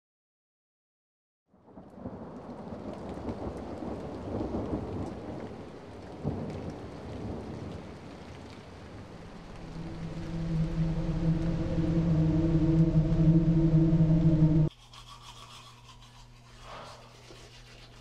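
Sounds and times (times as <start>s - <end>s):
rain falling: 1.6s - 14.7s
rolling thunder: 1.9s - 14.7s.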